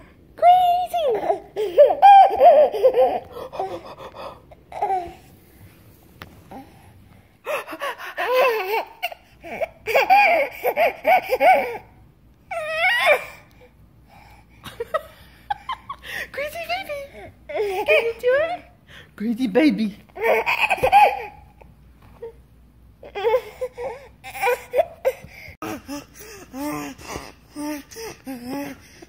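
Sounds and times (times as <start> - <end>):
baby laughing: 1.1 - 5.1, 7.5 - 11.8, 20.2 - 21.6
baby squealing: 1.2 - 3.7.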